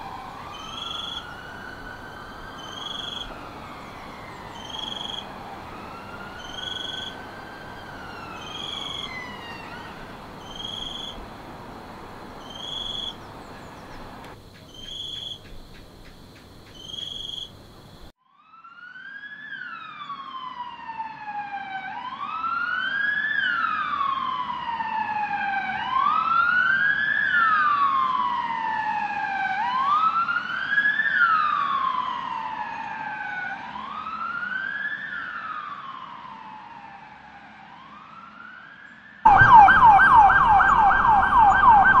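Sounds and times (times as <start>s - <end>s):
fast yelp siren: 0.0s - 11.2s, 12.2s - 14.2s, 18.3s - 42.0s
wail siren: 0.0s - 14.2s, 18.2s - 42.0s
traffic noise: 0.0s - 18.1s, 23.5s - 42.0s
short repeating siren tone: 39.3s - 42.0s.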